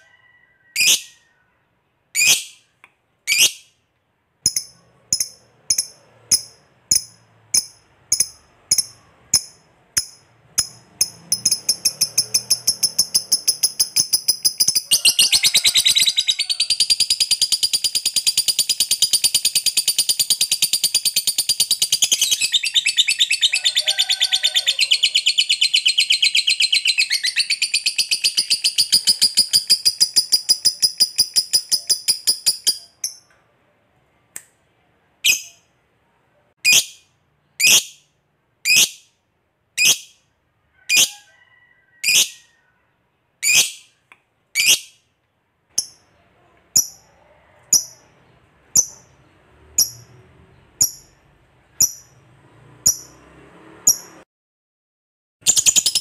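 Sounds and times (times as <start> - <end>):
sharp high bird chirps: 2.2 - 3.8, 4.4 - 23.5, 25.1 - 33.3, 35.3 - 35.7, 36.6 - 39.2, 44.6 - 45.1, 48.8 - 49.2, 50.8 - 52.2, 52.9 - 53.2, 55.4 - 56.0
lovebird chattering trill: 4.4 - 23.8, 24.8 - 33.2.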